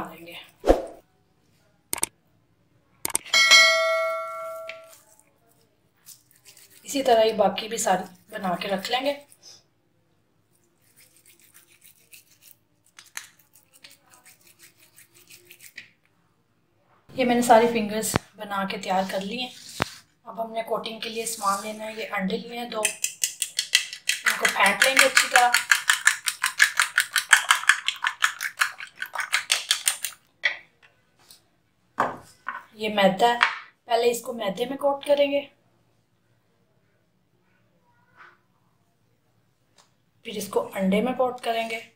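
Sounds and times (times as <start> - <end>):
fork beating eggs in a plate: 6.0 - 7.1, 10.6 - 16.0, 22.8 - 30.2
hands rolling sticky mince: 22.8 - 30.2.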